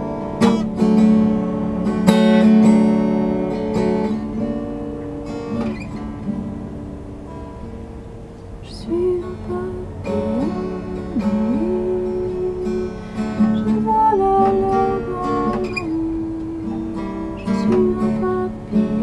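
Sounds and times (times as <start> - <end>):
acoustic guitar: 0.0 - 19.0
woman singing: 8.6 - 19.0.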